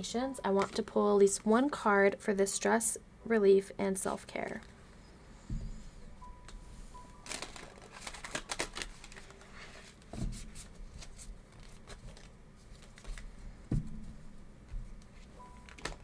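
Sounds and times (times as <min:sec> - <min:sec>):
cards being shuffled: 0:07.2 - 0:13.4, 0:15.0 - 0:16.0.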